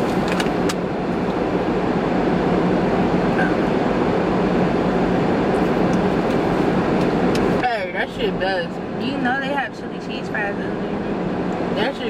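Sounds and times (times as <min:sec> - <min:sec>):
car climate fan rushing: 0:00.0 - 0:12.0
car engine hum: 0:00.0 - 0:12.0.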